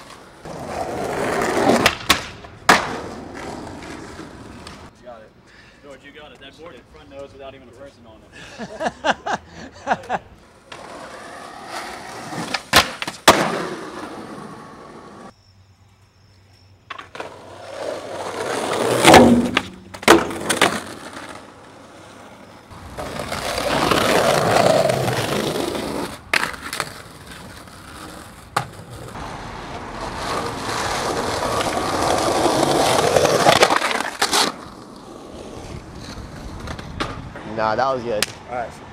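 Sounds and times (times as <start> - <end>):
skateboard wheels rolling on concrete: 0.0 - 38.9
skateboard clacks: 1.4 - 3.1, 18.4 - 22.1.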